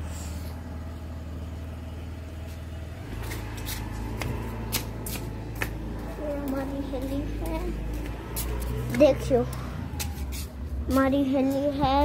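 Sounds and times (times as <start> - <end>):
steady low rumble: 0.0 - 12.0
footsteps on brick paving: 2.4 - 12.0.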